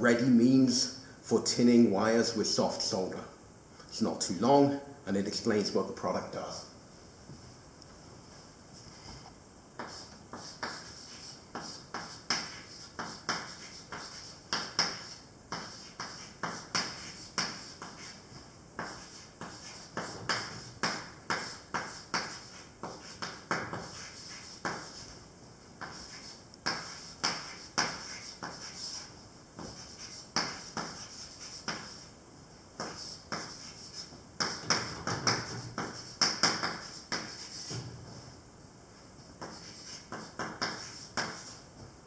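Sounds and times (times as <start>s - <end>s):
chalk tapping and scratching: 9.8s - 25.2s, 25.8s - 32.1s, 32.8s - 37.8s, 39.4s - 41.6s.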